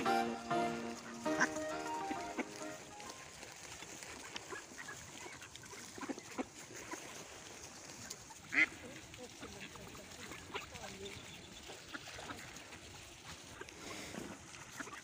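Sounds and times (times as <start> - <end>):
ducks quacking: 0.0 - 7.4, 8.0 - 15.0.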